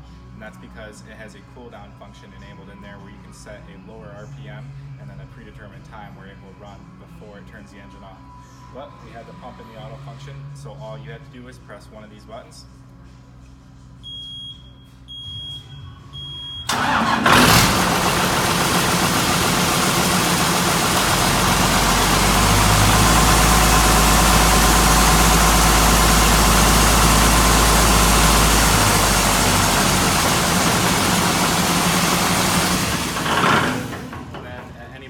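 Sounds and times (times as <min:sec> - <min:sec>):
short high beeps: 0:14.1 - 0:16.7
diesel engine cranking and running: 0:16.6 - 0:35.0.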